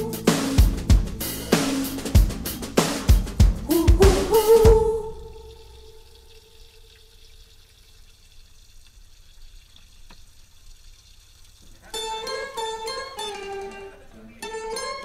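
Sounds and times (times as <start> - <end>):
background music: 0.0 - 5.9, 11.9 - 15.0
faint steady hiss: 0.0 - 15.0.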